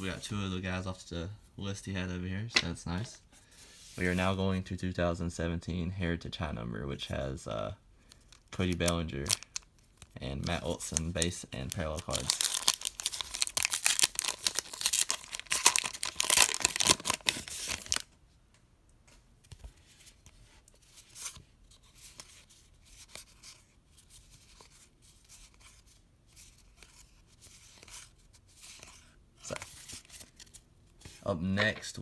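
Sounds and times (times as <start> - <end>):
foil wrapper tearing and crinkling: 9.2 - 18.0.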